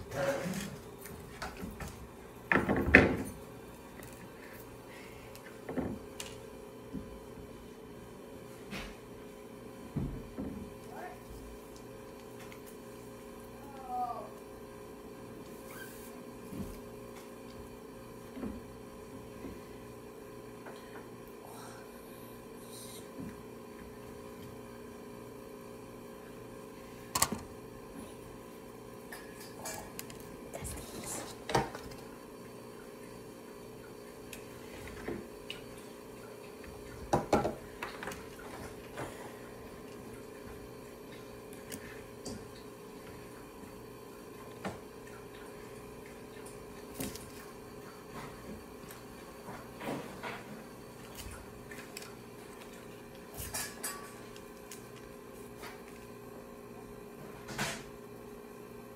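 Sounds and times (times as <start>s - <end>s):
steady background hum: 0.0s - 58.9s.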